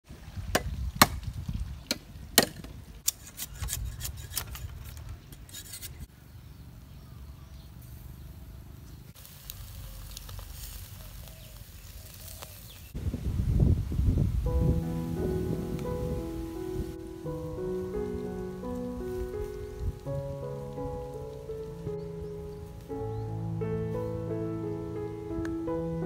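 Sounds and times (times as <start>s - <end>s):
meat sizzling on grill: 9.2s - 13.0s.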